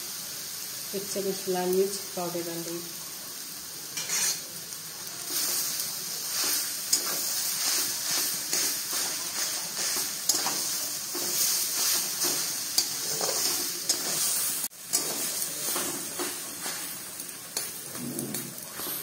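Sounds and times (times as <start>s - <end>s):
steady sizzle: 0.0s - 19.0s
metal spatula scraping pan: 4.0s - 4.4s, 6.4s - 17.0s.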